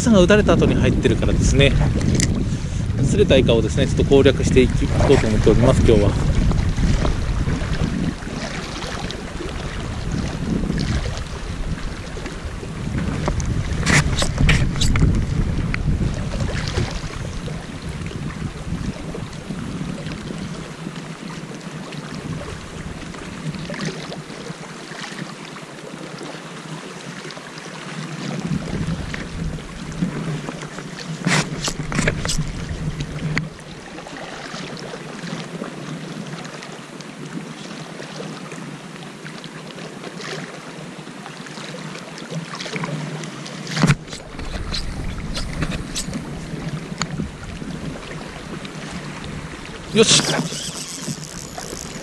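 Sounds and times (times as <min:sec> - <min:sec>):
wind on microphone: 0:00.0 - 0:24.4, 0:28.3 - 0:34.4, 0:43.7 - 0:52.0
water lapping on rocky shore: 0:00.0 - 0:38.6, 0:41.4 - 0:52.0.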